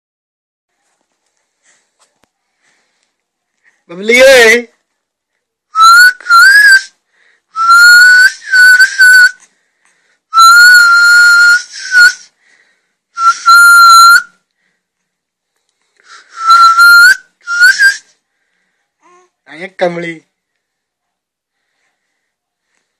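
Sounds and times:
person whistling: 5.8s - 7.0s, 7.6s - 9.4s, 10.3s - 12.3s, 13.2s - 14.4s, 16.0s - 18.1s.

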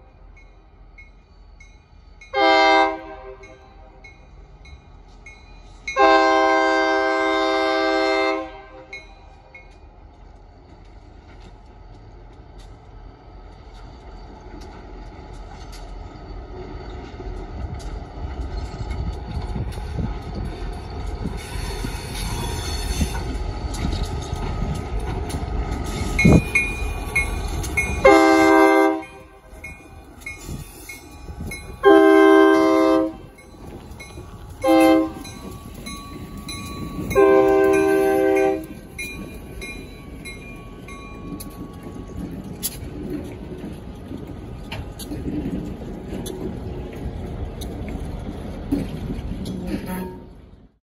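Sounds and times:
locomotive rumble: 0.0s - 50.8s
locomotive air horn: 2.3s - 4.0s, 6.0s - 8.9s, 28.0s - 29.6s, 31.8s - 33.4s, 34.6s - 35.4s, 37.1s - 38.8s, 49.8s - 50.4s.

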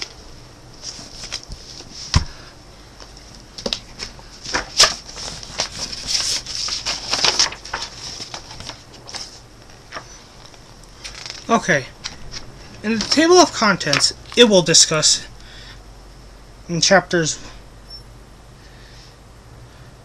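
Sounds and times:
book pages turning: 0.8s - 2.2s, 3.6s - 14.5s.

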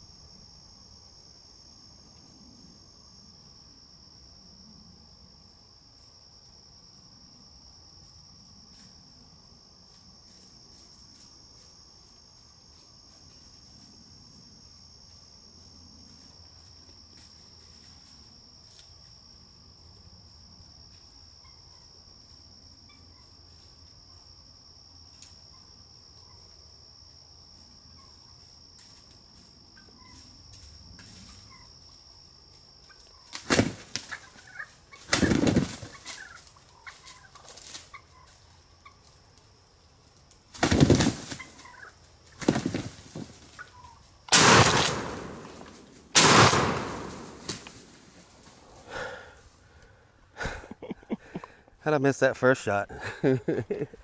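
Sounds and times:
wild turkeys gobbling: 32.8s - 39.0s, 40.6s - 47.8s
shotgun shots: 44.3s - 47.8s.

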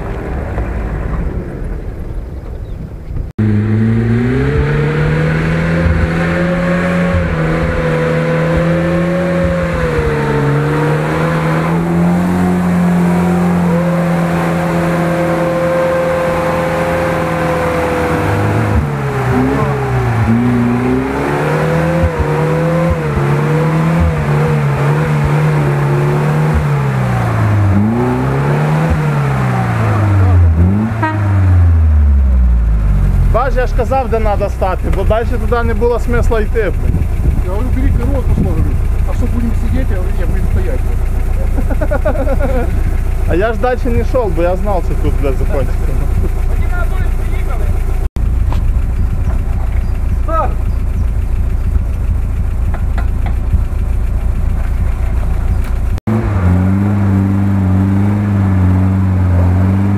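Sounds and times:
off-road vehicle engine revving: 0.0s - 59.9s
wind rumble: 34.1s - 42.0s.

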